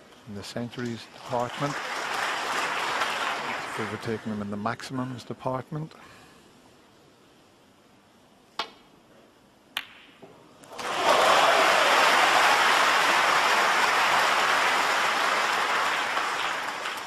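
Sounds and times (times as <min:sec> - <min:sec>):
audience applauding: 0:01.2 - 0:04.5, 0:10.7 - 0:17.0.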